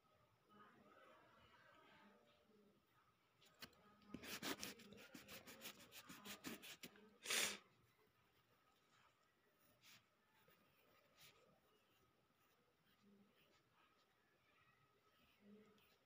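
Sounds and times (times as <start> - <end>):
eraser rubbing on paper: 4.1 - 7.6.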